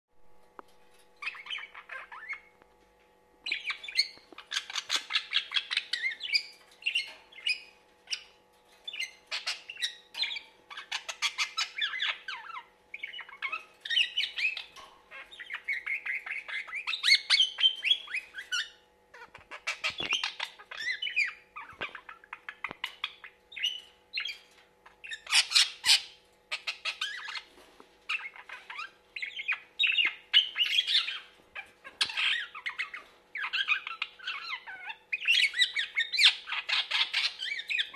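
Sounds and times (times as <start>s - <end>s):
budgerigar chattering and warbling: 9.3s - 23.7s.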